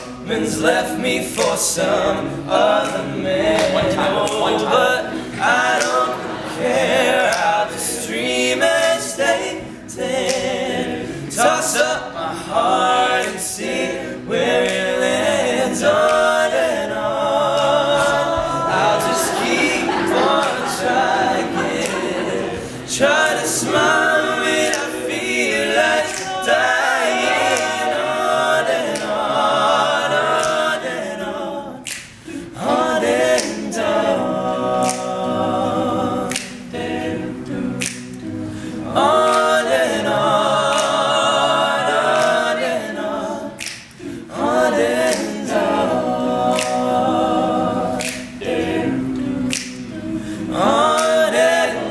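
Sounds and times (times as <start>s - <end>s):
male group singing in harmony: 0.0s - 51.9s
finger snaps: 1.3s - 1.8s, 2.8s - 6.2s, 7.2s - 9.0s, 10.2s - 10.6s, 14.6s - 16.6s, 21.5s - 29.2s, 30.3s - 30.9s, 31.8s - 34.1s, 34.8s - 35.4s, 36.2s - 41.4s, 42.1s - 51.6s.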